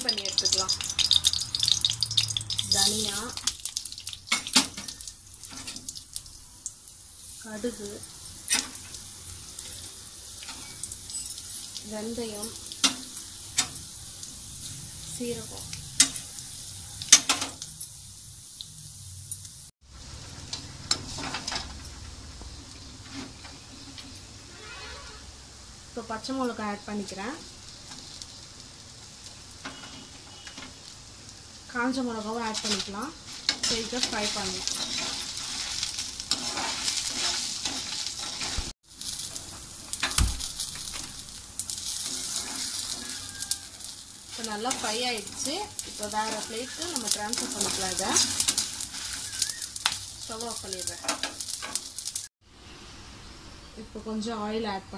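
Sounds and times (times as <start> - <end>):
spices sizzling in oil: 0.0 - 54.8
metal spoon scraping a pan: 32.4 - 39.3, 41.8 - 49.9.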